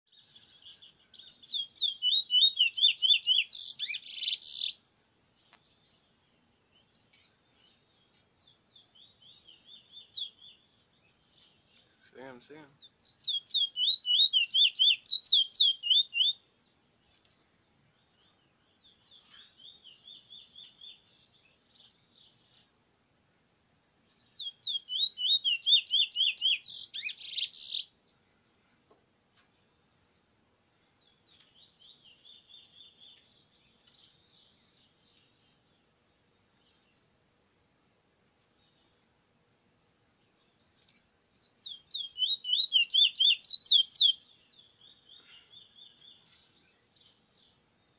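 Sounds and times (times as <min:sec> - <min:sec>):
finch singing: 0:00.1 - 0:23.1, 0:24.0 - 0:28.5, 0:39.6 - 0:47.9.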